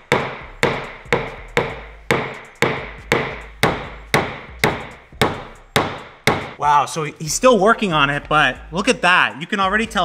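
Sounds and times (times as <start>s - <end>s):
hammer tapping punch on metal: 0.1s - 6.6s.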